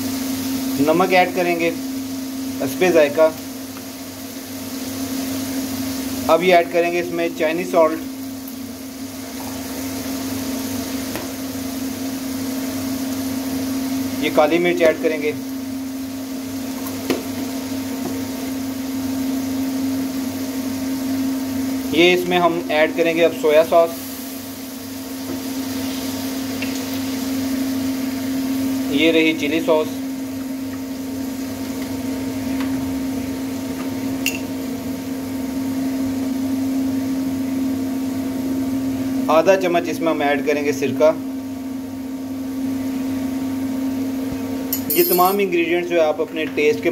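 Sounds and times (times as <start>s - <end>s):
even hiss: 21.9s - 26.5s.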